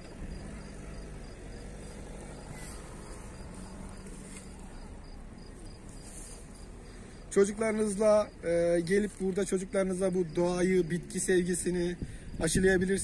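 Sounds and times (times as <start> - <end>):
insect chirping: 0.0 - 13.0.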